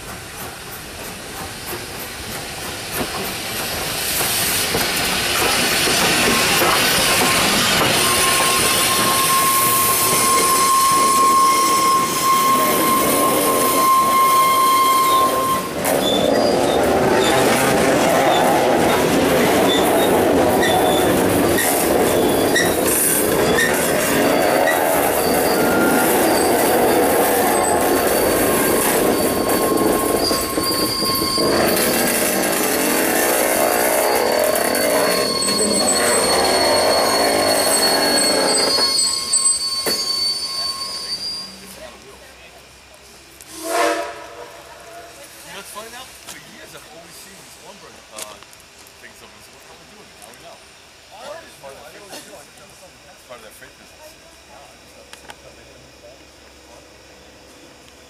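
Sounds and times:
freight train rolling on rails: 0:00.0 - 0:58.0
high-pitched wheel squeal: 0:06.4 - 0:41.9.

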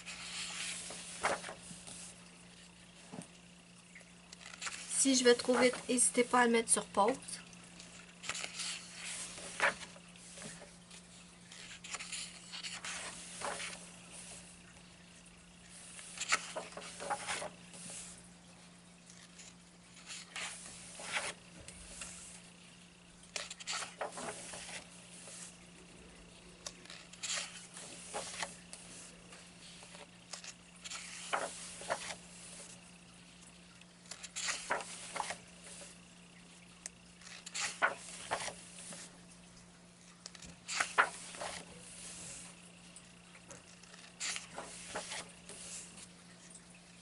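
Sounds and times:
paper pages turning: 0:00.0 - 0:02.6, 0:04.3 - 0:06.3, 0:07.8 - 0:14.8, 0:15.7 - 0:18.2, 0:19.0 - 0:22.5, 0:23.3 - 0:25.6, 0:26.6 - 0:32.8, 0:34.0 - 0:36.0, 0:36.8 - 0:39.1, 0:40.1 - 0:42.6, 0:43.4 - 0:46.6
low electrical hum: 0:00.0 - 0:47.0.

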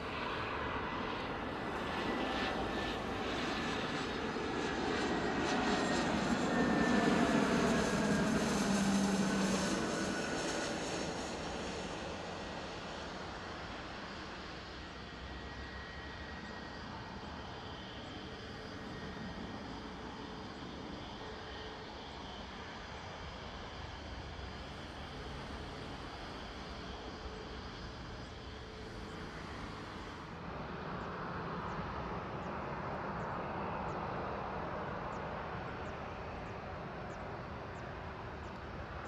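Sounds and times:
airliner engine on approach: 0:00.0 - 0:39.0
jet engine noise: 0:00.0 - 0:39.0.

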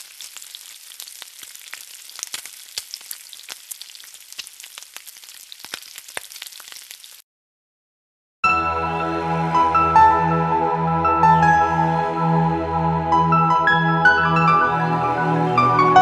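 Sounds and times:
food sizzling and popping in oil: 0:00.0 - 0:07.2.

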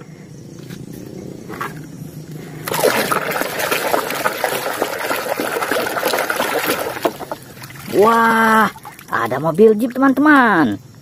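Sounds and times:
water splashing and sloshing: 0:01.5 - 0:10.7.

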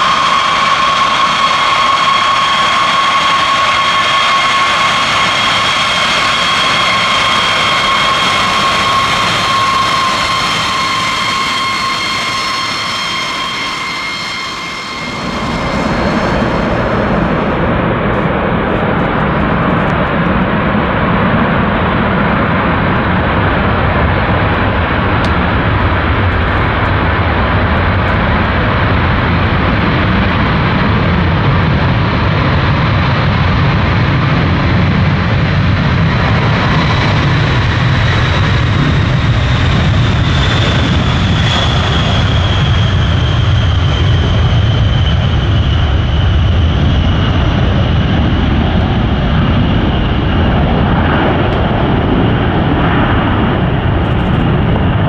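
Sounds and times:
high engine whine falling in pitch: 0:00.0 - 0:21.8
jet engines roaring: 0:00.0 - 0:55.0.

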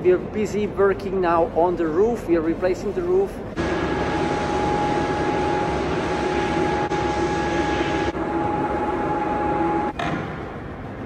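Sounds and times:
machinery hum: 0:00.0 - 0:11.0
high whine: 0:03.6 - 0:10.0.

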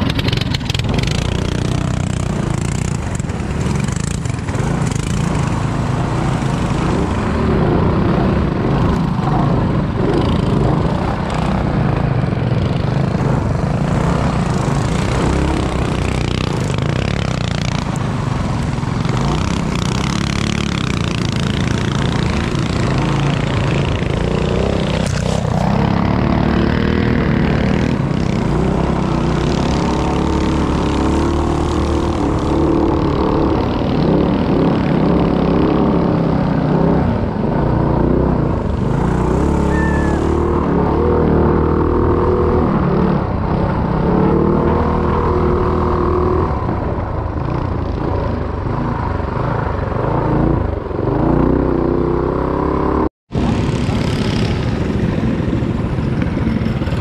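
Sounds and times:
minibike engine revving: 0:00.0 - 0:57.0.

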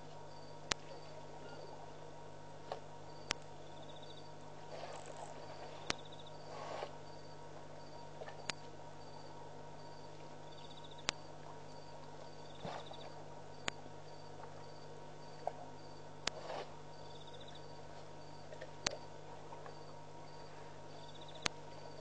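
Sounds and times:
low hum: 0:00.0 - 0:22.0
crickets chirping: 0:00.3 - 0:01.8, 0:03.1 - 0:22.0
insect trill: 0:03.1 - 0:04.4, 0:05.0 - 0:16.0, 0:16.9 - 0:18.5, 0:19.7 - 0:22.0.

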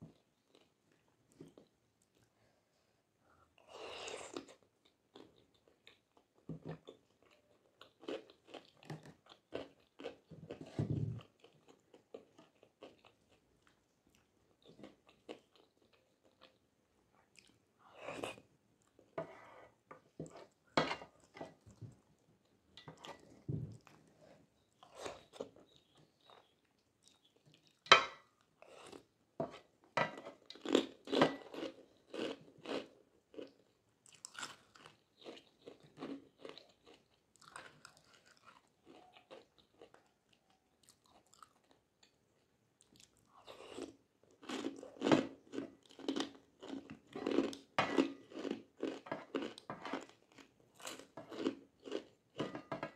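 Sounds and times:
chewing and biting: 0:42.8 - 0:52.1.

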